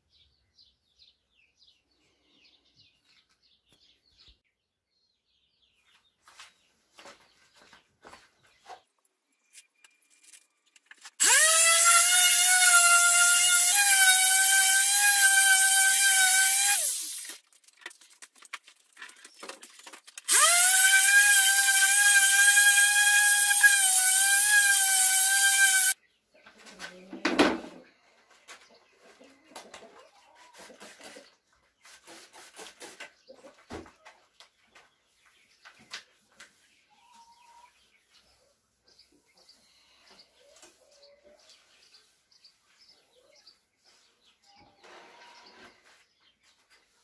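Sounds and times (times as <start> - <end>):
power tool motor whining: 11.2 - 17.3, 20.3 - 26.0.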